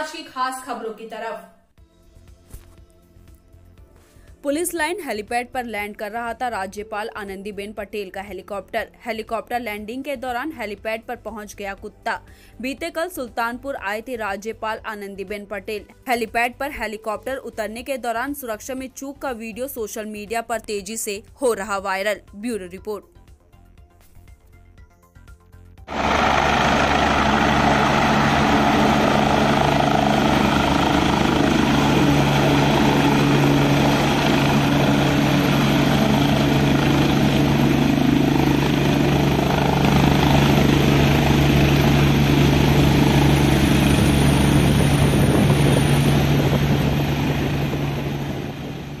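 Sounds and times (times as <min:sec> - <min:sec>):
helicopter rotor and engine: 0:25.9 - 0:49.0.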